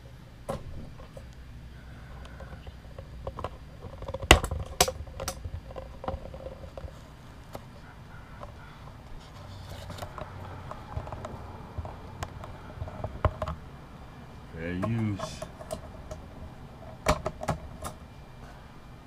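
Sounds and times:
rustling: 0.7s - 13.6s.

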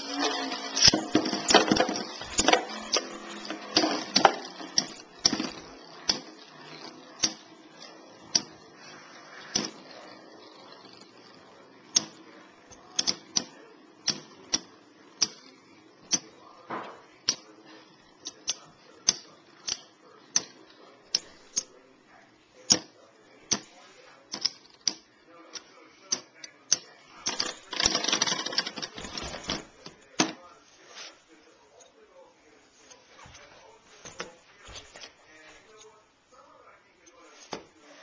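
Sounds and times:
whirring scrape of spinning tops: 0.0s - 16.6s, 17.2s - 29.4s.

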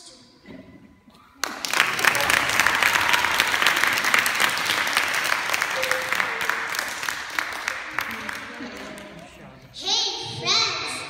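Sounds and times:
audience applauding: 1.4s - 9.5s.

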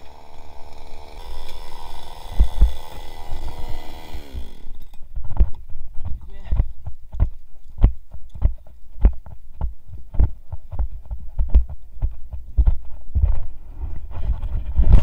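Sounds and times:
footsteps with dull thuds: 5.0s - 15.0s.

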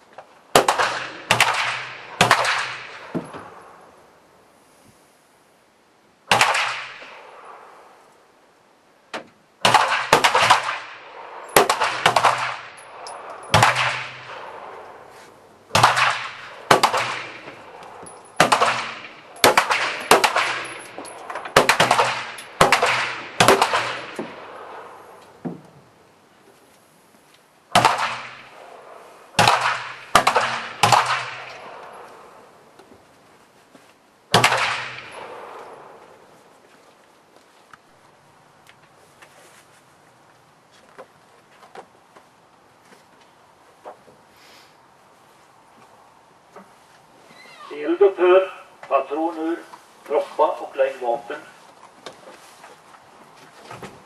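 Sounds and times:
pistol shots with echo: 0.5s - 3.8s, 6.3s - 7.7s, 9.6s - 15.1s, 15.7s - 25.2s, 27.7s - 32.6s, 34.3s - 36.2s.

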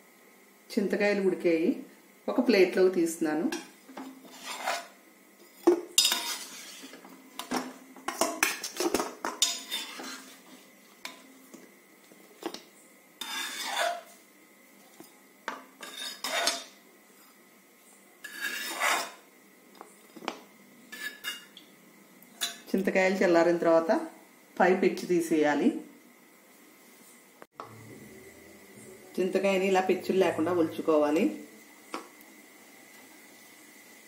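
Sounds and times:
metal spoon clinking and scraping: 3.5s - 5.0s, 5.6s - 11.3s, 13.2s - 14.1s, 15.8s - 16.8s, 18.2s - 19.2s, 20.9s - 21.6s.

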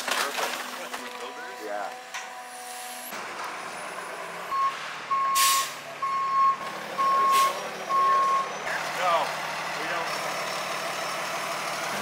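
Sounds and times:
truck reversing alarm beeping: 1.2s - 9.0s
air brake hiss: 5.4s - 5.8s.

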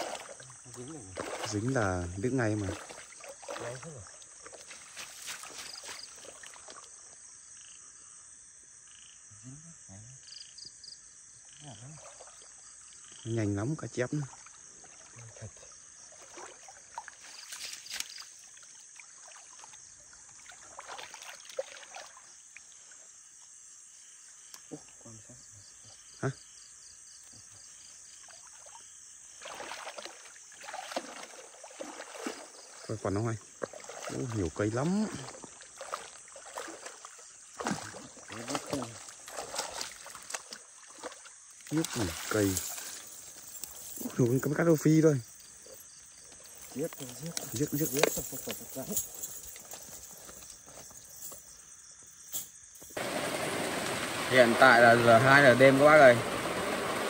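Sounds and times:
water splashing and dripping: 0.0s - 7.2s, 13.4s - 23.0s, 28.2s - 51.4s, 52.8s - 57.0s
frogs and insects buzzing: 0.0s - 57.0s.

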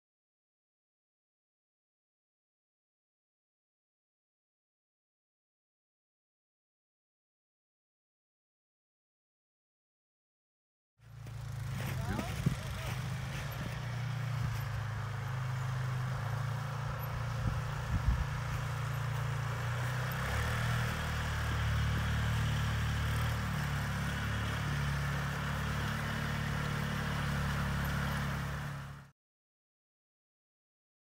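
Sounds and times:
atv engine running: 11.0s - 29.1s.

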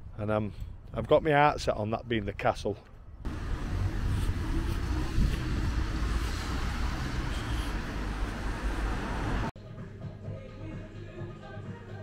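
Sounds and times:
cars driving along road: 3.3s - 9.6s.

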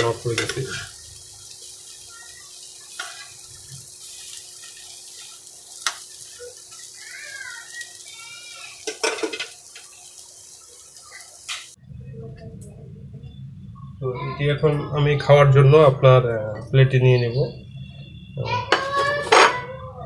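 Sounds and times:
food sizzling in a frying pan: 0.0s - 11.8s, 17.6s - 19.7s
spatula scraping a pan: 0.3s - 1.0s, 2.8s - 6.9s, 8.7s - 9.9s, 18.7s - 19.7s.

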